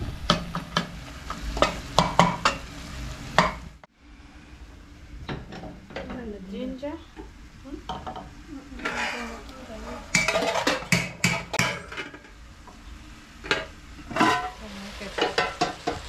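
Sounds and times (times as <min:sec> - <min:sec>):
spoon and pot lids clanking: 0:07.9 - 0:12.3, 0:13.5 - 0:16.0.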